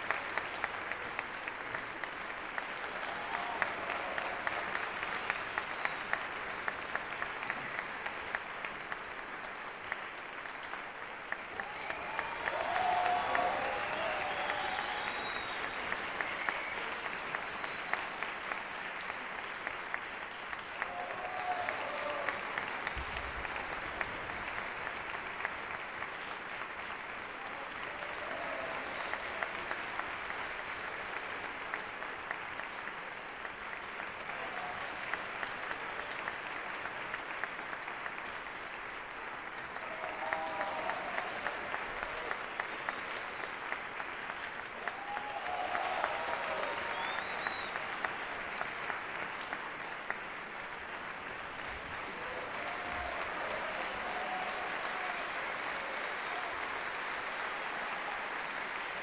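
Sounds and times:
audience applauding: 0:00.0 - 0:59.0
calls from crowd: 0:01.2 - 0:06.5, 0:11.4 - 0:19.3, 0:19.9 - 0:23.8, 0:27.2 - 0:31.6, 0:34.0 - 0:36.8, 0:39.5 - 0:50.2, 0:51.0 - 0:59.0.

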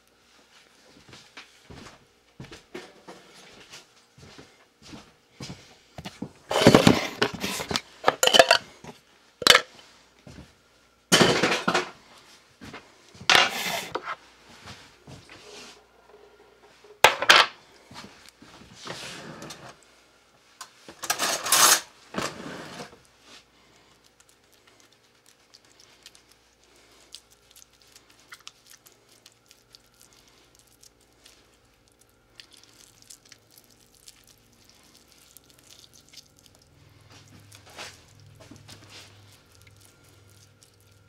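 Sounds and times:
hands handling kitchen things: 0:06.5 - 0:09.7, 0:11.1 - 0:12.0, 0:13.2 - 0:14.2, 0:16.6 - 0:17.6.

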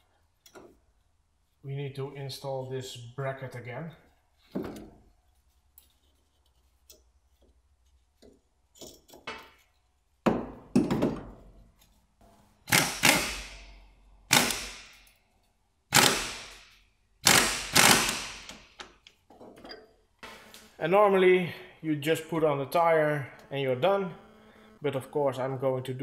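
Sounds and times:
faint clicks of metal parts: 0:00.0 - 0:01.6, 0:04.0 - 0:10.1, 0:14.9 - 0:15.8, 0:18.5 - 0:20.1
impact wrench bursts: 0:12.7 - 0:13.7, 0:14.3 - 0:15.0, 0:15.9 - 0:18.8.

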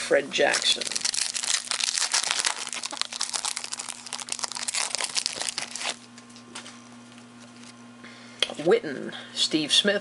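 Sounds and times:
foil wrappers crinkling: 0:00.5 - 0:06.7.

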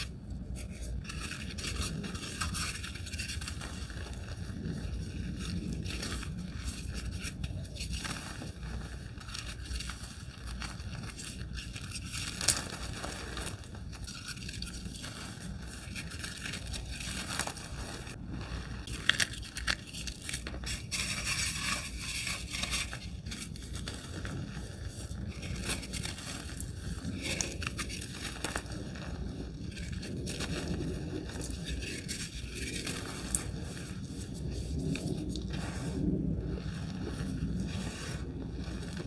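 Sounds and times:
chalk crunching and crackling: 0:00.0 - 0:39.0.

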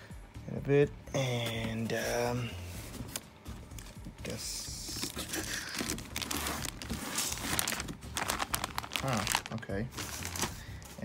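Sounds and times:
plastic film crinkling: 0:04.8 - 0:10.8
cardboard box scraping and rustling: 0:05.0 - 0:08.4.

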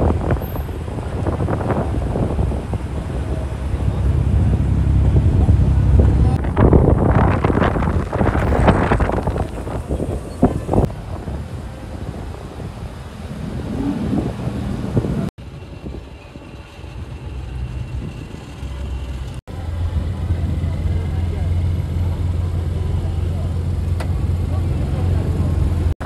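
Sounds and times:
wind gusting on microphone: 0:00.0 - 0:18.8
cars passing on street: 0:00.0 - 0:26.0.

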